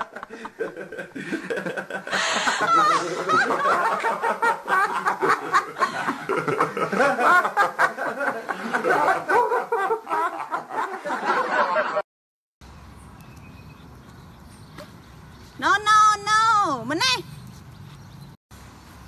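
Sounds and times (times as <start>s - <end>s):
giggling laughter: 0.0s - 12.0s.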